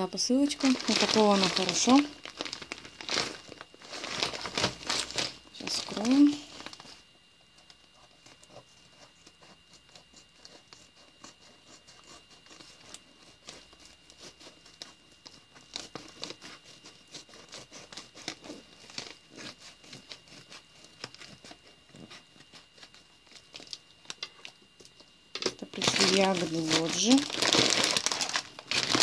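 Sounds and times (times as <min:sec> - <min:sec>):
padded mailer crinkling: 0:00.4 - 0:06.9, 0:25.4 - 0:29.0.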